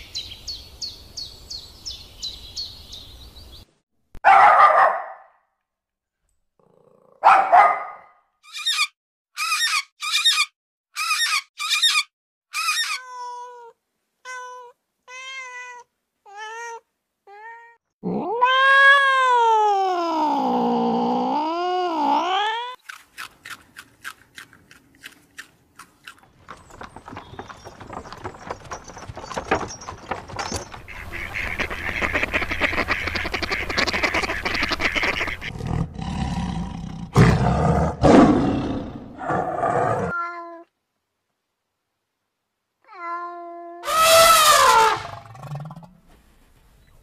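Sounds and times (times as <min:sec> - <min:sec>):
tiger growling: 0:35.5 - 0:40.1
elephant trumpeting: 0:43.8 - 0:45.4.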